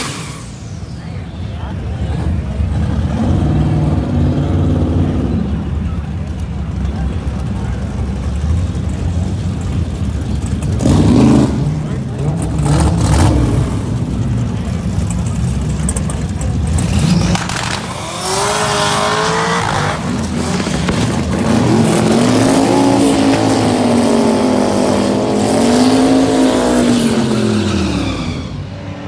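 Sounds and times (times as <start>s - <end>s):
drag race car engines revving: 0.0s - 29.0s
tyre squeal: 27.3s - 28.8s.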